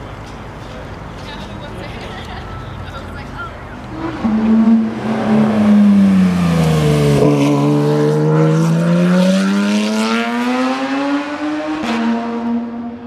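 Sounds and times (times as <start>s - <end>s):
sports car driving past: 3.9s - 13.0s.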